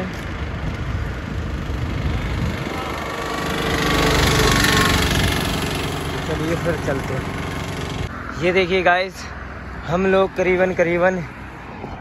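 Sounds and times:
auto-rickshaw engine passing by: 0:01.1 - 0:08.3.

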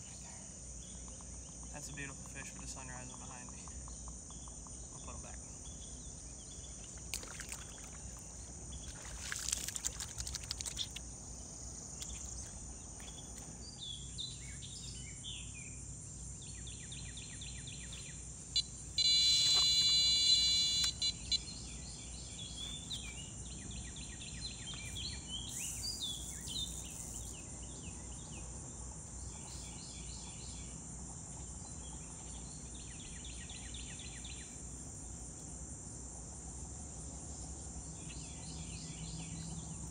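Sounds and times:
insect chorus: 0:00.0 - 0:39.9
birds chirping: 0:16.4 - 0:28.4
loud steady multi-pitched tone: 0:18.5 - 0:21.6.

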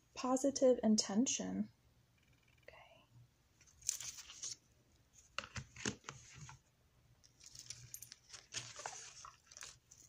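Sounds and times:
paper and cardboard rustling: 0:03.8 - 0:06.6, 0:07.4 - 0:10.0.

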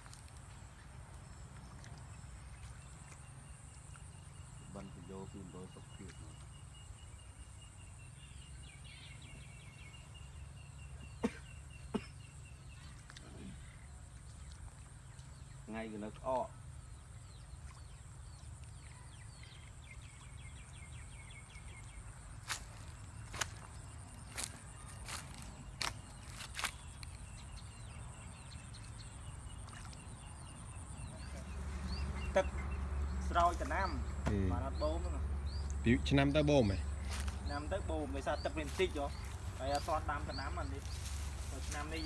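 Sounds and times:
bird chirping: 0:00.0 - 0:42.0
footsteps on dry leaves: 0:22.4 - 0:27.2, 0:37.0 - 0:37.5, 0:38.6 - 0:42.0.

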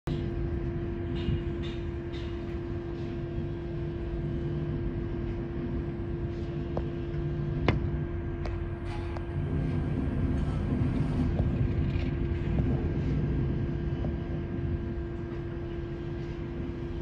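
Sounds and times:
machinery droning hum: 0:00.1 - 0:17.0.

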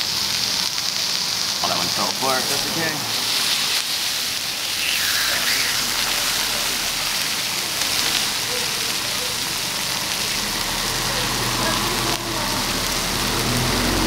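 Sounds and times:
beef sizzling on a griddle: 0:00.0 - 0:14.0
fat spitting: 0:04.5 - 0:08.3.

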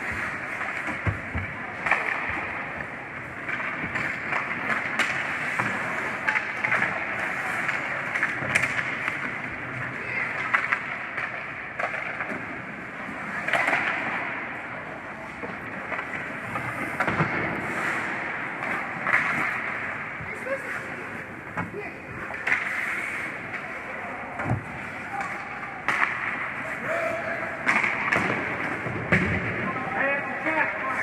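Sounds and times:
hockey sticks and puck clacking: 0:00.0 - 0:31.0
ice skate blades scraping: 0:15.2 - 0:29.4.

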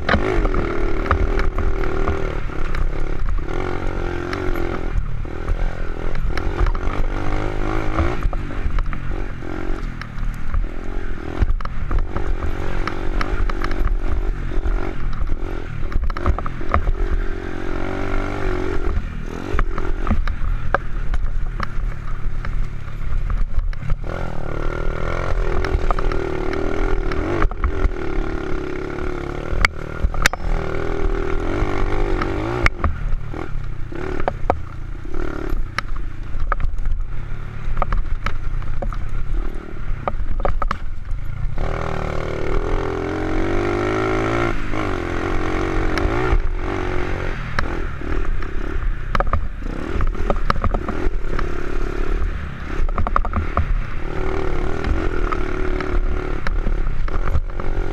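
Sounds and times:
knocks and rattles over bumps: 0:00.0 - 0:57.9
motorcycle engine revving: 0:00.0 - 0:57.9.

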